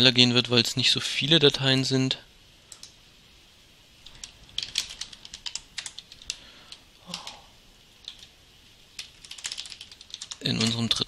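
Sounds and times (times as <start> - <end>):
typing on computer keyboard: 4.1 - 6.4, 8.0 - 8.3, 9.0 - 10.9.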